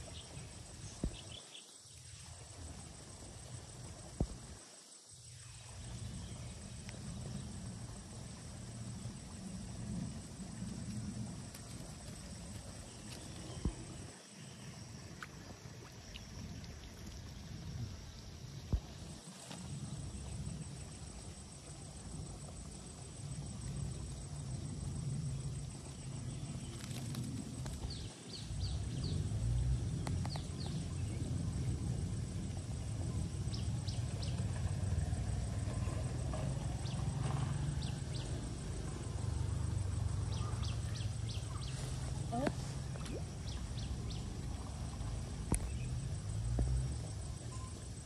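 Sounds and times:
wind rumble on microphone: 2.2 - 4.6, 5.6 - 14.2, 14.9 - 48.0
faint steady high tone: 47.3 - 47.9.

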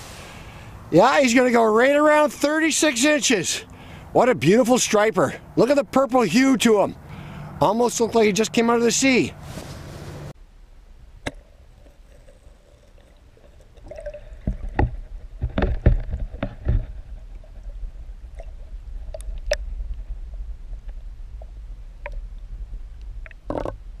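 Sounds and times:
underwater water sloshing: 11.7 - 22.4
low underwater rumble: 13.4 - 24.0
knocks and splashes: 13.9 - 19.7.

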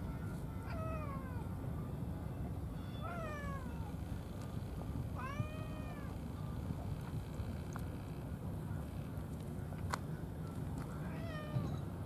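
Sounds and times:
cat meowing: 0.6 - 1.4, 2.9 - 3.9, 5.2 - 6.2, 11.0 - 11.8.

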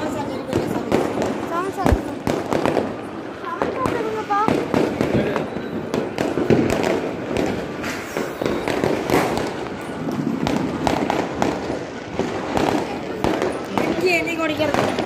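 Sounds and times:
firecrackers popping and banging: 0.0 - 15.0.

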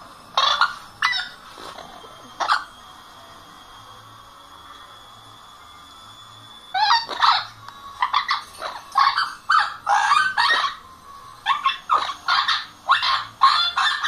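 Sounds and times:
parrot squawking: 0.4 - 2.7, 6.8 - 10.8, 11.4 - 14.0.

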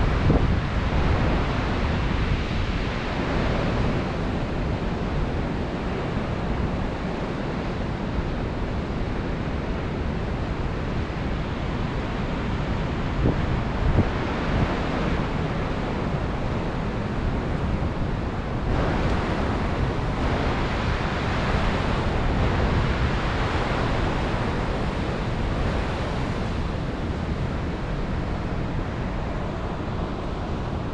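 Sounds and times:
ocean surf breaking over rocks: 0.0 - 30.9.

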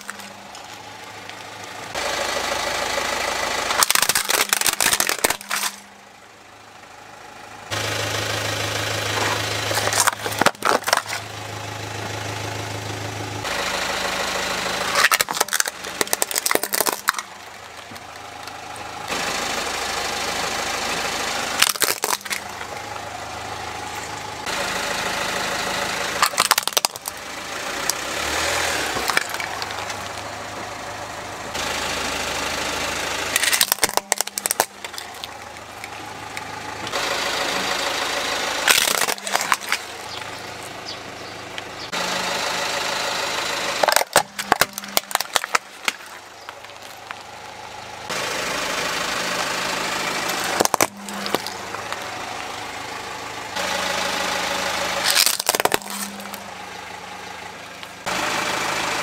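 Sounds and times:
plastic toys crunching under tyre: 0.0 - 2.0, 3.7 - 6.0, 9.1 - 11.4, 14.8 - 19.1, 21.5 - 23.1, 26.2 - 30.6, 33.2 - 37.9, 38.6 - 42.0, 43.6 - 48.2, 50.0 - 52.6, 54.4 - 56.7
car engine idling: 0.0 - 59.0.

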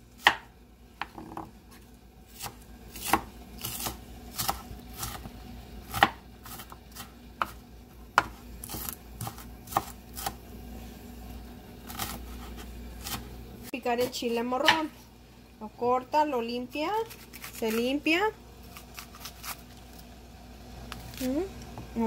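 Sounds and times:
knife chopping on wooden board: 0.2 - 1.5, 2.4 - 5.3, 5.9 - 10.4, 14.0 - 14.9.

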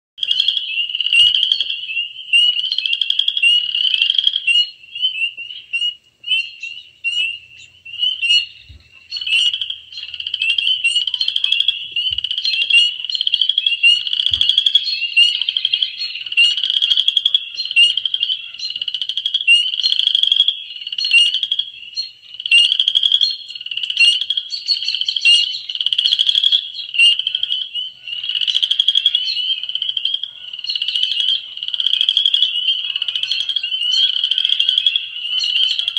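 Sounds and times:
chorus of frogs calling: 0.2 - 35.9.

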